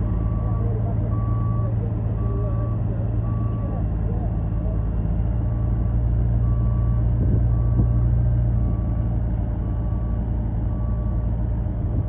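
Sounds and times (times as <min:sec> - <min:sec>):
reversing alarm beeping: 0:00.0 - 0:04.8, 0:05.5 - 0:11.4
diesel truck engine running: 0:00.0 - 0:12.0.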